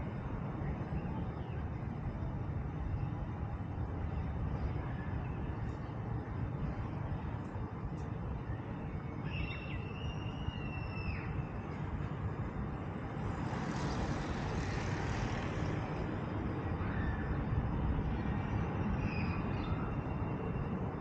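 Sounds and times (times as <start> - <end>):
low rumble of city traffic: 0.0 - 21.0
hiss: 13.3 - 15.9.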